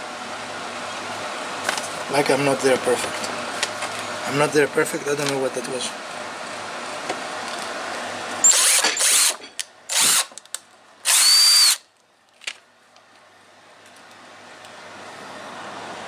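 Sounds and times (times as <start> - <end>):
cordless drill boring into wood: 8.4 - 10.3, 11.0 - 11.8.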